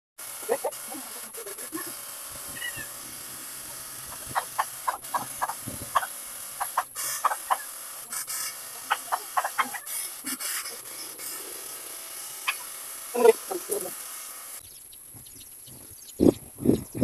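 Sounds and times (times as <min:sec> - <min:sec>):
steady high hiss: 0:00.4 - 0:14.8
chickens clucking: 0:04.1 - 0:11.8, 0:12.4 - 0:13.9.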